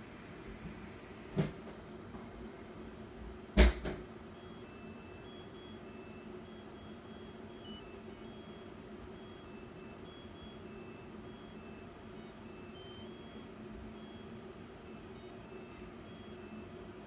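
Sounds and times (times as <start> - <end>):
dishwasher chime high beeps: 4.4 - 17.0.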